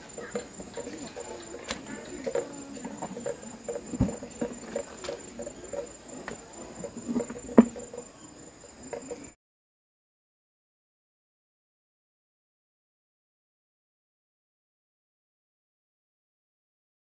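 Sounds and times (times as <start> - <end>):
rustling and handling: 0.0 - 8.1.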